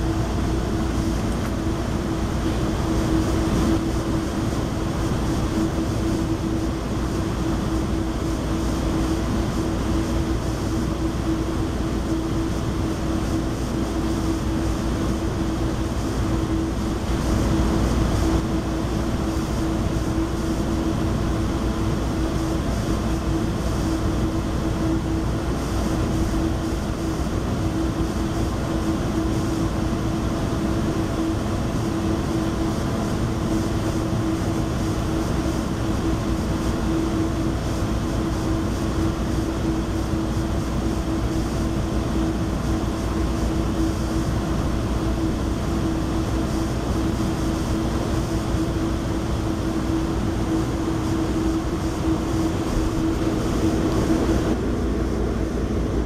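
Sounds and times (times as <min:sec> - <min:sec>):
constant droning tone: 0:00.0 - 0:56.0.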